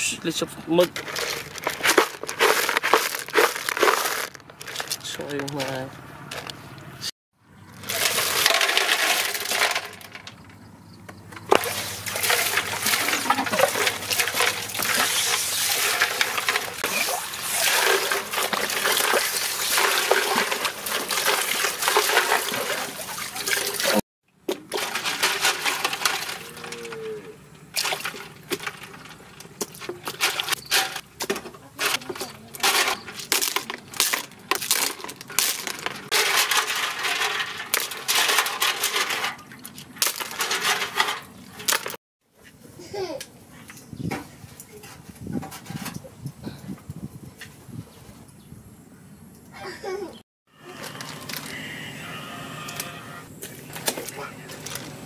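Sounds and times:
water pouring into bucket: 11.5s - 24.0s.

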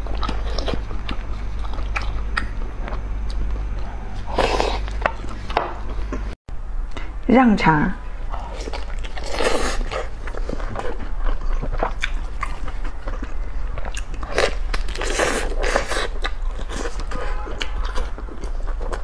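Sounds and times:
biting and chewing sausage: 8.5s - 19.0s.

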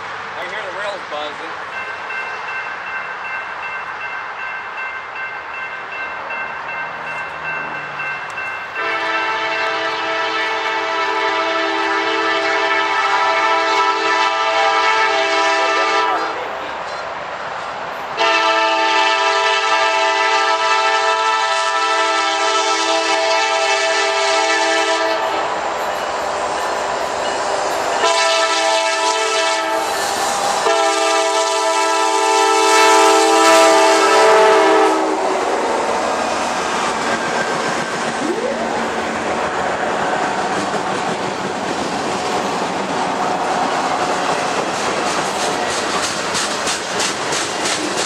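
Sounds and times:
freight train noise: 0.0s - 48.0s
locomotive air horn blasts: 8.8s - 16.4s, 18.2s - 25.5s, 28.0s - 30.0s, 30.6s - 35.5s.

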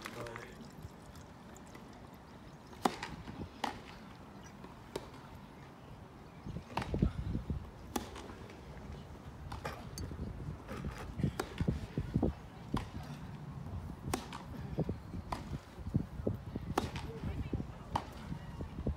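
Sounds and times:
tennis ball struck with racquets: 2.8s - 3.9s, 6.7s - 7.1s, 7.8s - 8.4s, 12.7s - 13.2s, 14.0s - 14.6s, 15.3s - 15.6s, 16.7s - 17.2s.

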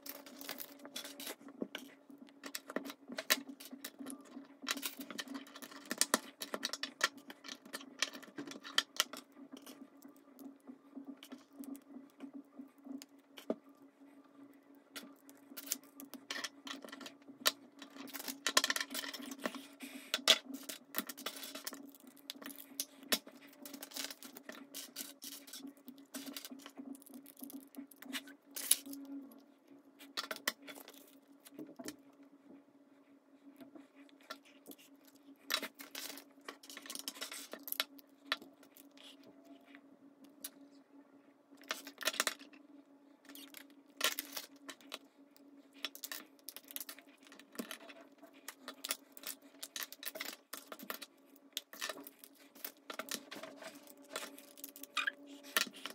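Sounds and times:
steady low hum: 0.0s - 55.9s
plastic bricks clicking and rattling: 45.8s - 55.9s.

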